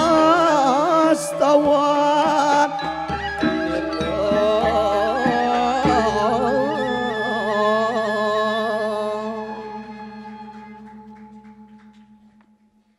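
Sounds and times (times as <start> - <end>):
gamelan metallophones and gongs: 2.3 - 7.3
low gong tone pulsing: 3.4 - 12.9.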